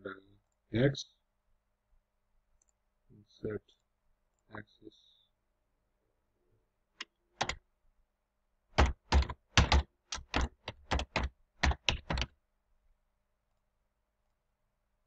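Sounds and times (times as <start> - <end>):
computer keyboard typing: 7.4 - 7.6, 8.8 - 12.3.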